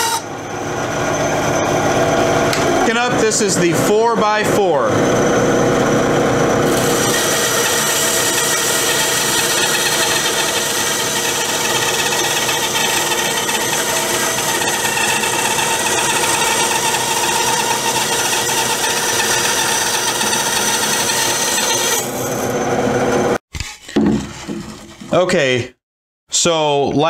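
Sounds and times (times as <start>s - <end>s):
band saw cutting wood: 0.0s - 0.3s, 6.6s - 22.6s.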